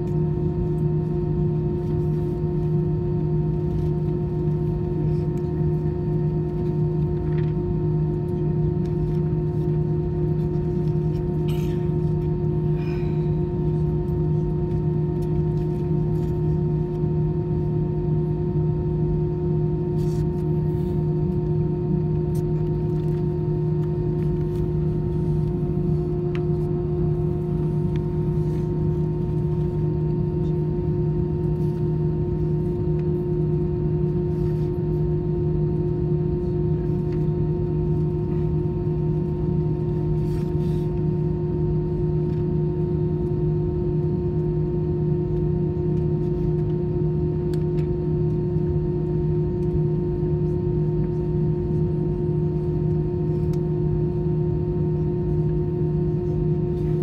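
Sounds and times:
jet engines idling: 0:20.5 - 0:34.2
faint clicks in cabin: 0:47.4 - 0:48.7, 0:52.6 - 0:53.8.

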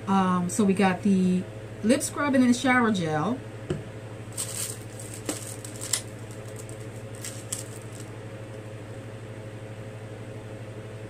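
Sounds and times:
low room hum: 0:00.0 - 0:11.0
packaged items clicking and rustling: 0:04.3 - 0:08.1.

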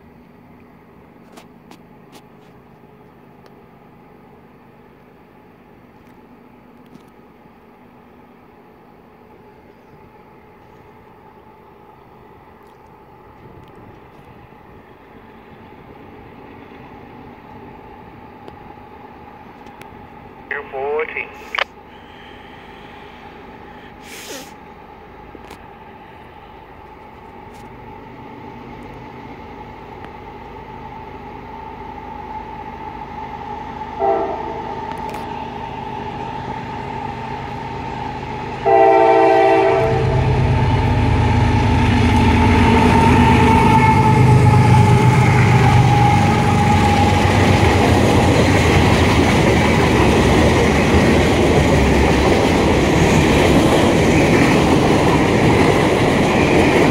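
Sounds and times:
train wheels rumbling on rail: 0:00.0 - 0:56.9
locomotive air horn blasts: 0:34.0 - 0:34.7, 0:38.6 - 0:40.3.

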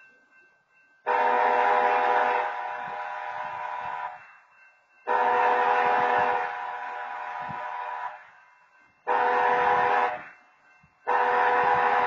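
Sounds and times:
train horn blasts: 0:01.1 - 0:04.2, 0:05.1 - 0:08.2, 0:09.1 - 0:10.3, 0:11.1 - 0:12.0.

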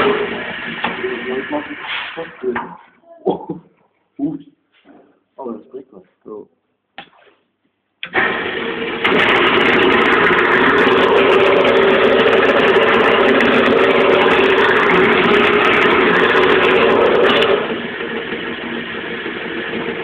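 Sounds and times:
turning tool cutting wood: 0:08.0 - 0:18.8
lathe motor hum: 0:08.1 - 0:20.0.

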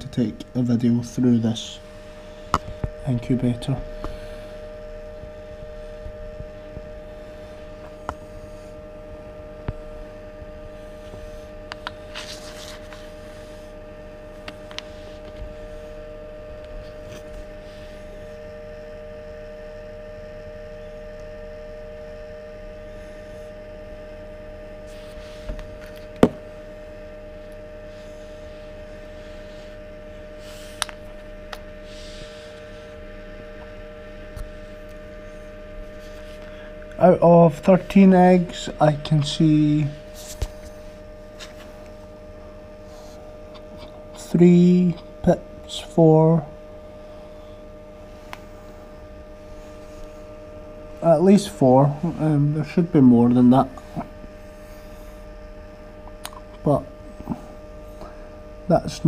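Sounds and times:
incubator electrical hum: 0:00.0 - 0:59.0.

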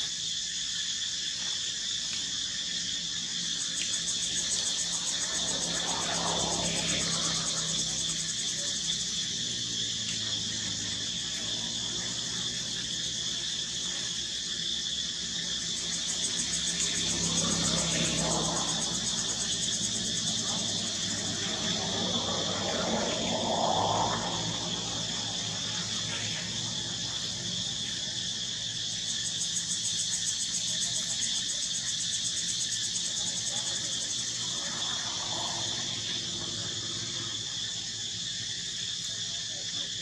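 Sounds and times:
insect chorus buzzing trill: 0:00.0 - 0:40.0.

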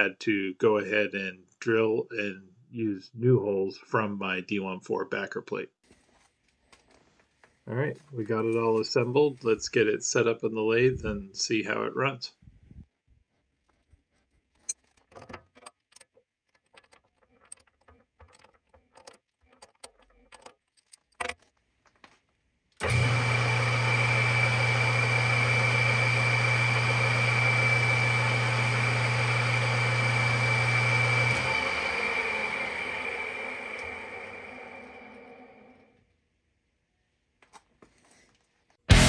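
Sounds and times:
lathe running with whine: 0:22.8 - 0:35.8.

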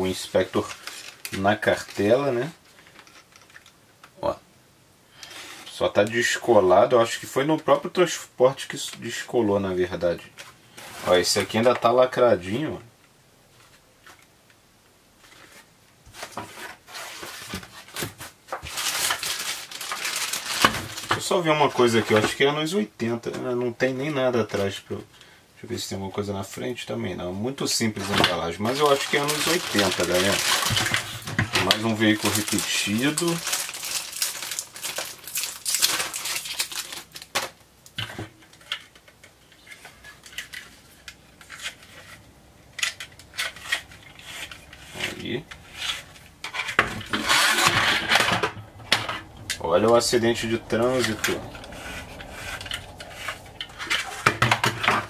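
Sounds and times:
packaging rustling: 0:00.0 - 0:03.8, 0:15.2 - 0:22.4, 0:27.9 - 0:55.0.

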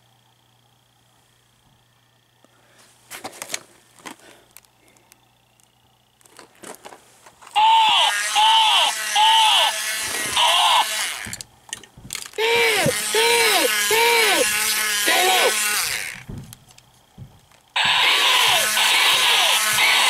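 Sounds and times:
toy electronic rising-falling tone: 0:07.6 - 0:11.2, 0:17.8 - 0:20.0.

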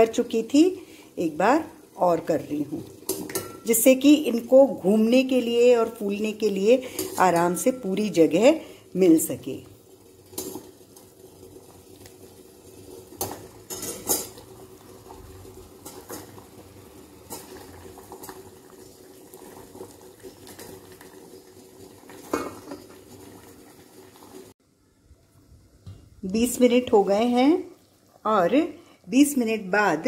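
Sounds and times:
sugar syrup boiling in a pan: 0:00.0 - 0:30.0
metal ladle clinking on pans: 0:03.1 - 0:03.7, 0:13.7 - 0:14.4.

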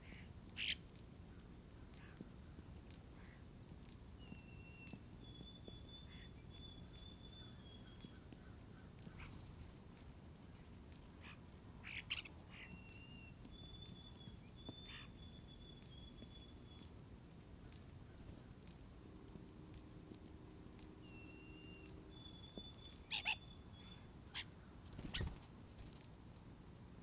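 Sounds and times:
starlings whistling: 0:04.2 - 0:08.2, 0:12.1 - 0:16.9, 0:21.0 - 0:24.1.

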